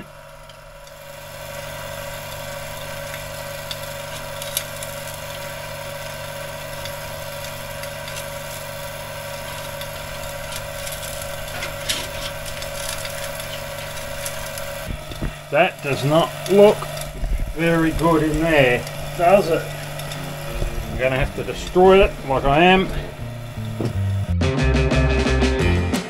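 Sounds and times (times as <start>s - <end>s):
motor running steadily: 0.0s - 24.4s.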